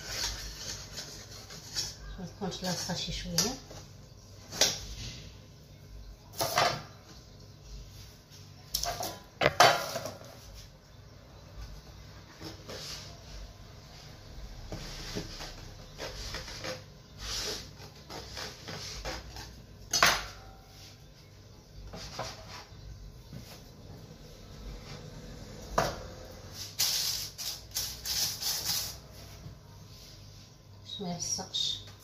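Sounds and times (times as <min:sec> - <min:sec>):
knife scraping metal pan: 0:00.0 - 0:02.1.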